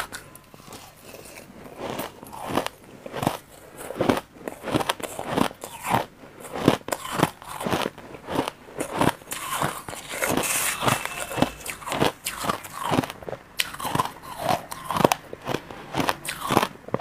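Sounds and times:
person chewing crushed ice: 0:00.0 - 0:17.0.

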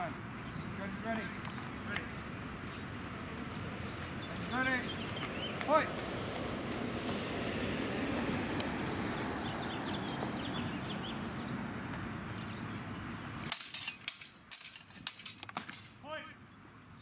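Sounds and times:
steel blades clashing: 0:13.5 - 0:16.0.

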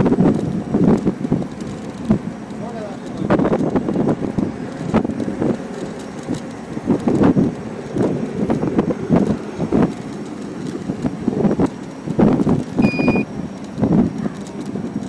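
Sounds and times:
rattling clicks: 0:00.0 - 0:15.0
wind buffeting microphone: 0:00.0 - 0:15.0
short electronic beep: 0:12.8 - 0:13.3.

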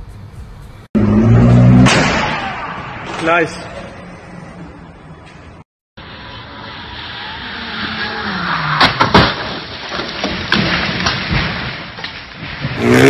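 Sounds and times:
car engine: 0:00.6 - 0:10.0
car crash: 0:01.0 - 0:04.0, 0:06.0 - 0:13.0.

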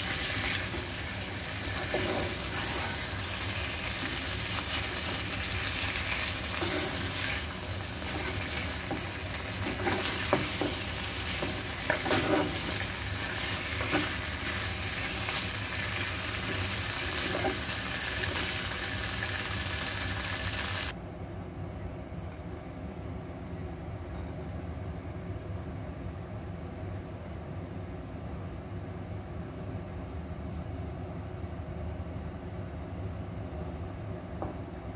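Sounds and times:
meat sizzling in a frying pan: 0:00.0 - 0:20.9
spatula scraping and knocking pan: 0:01.6 - 0:18.5.

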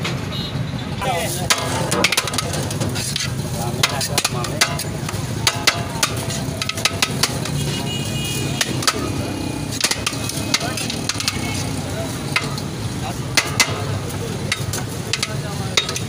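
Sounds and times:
low rumble of street traffic: 0:00.0 - 0:16.0
metal spoon scraping a pot: 0:01.3 - 0:07.8.

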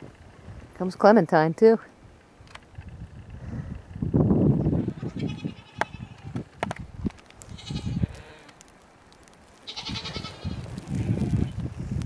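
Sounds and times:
goats bleating: 0:07.5 - 0:08.6, 0:09.6 - 0:11.5.

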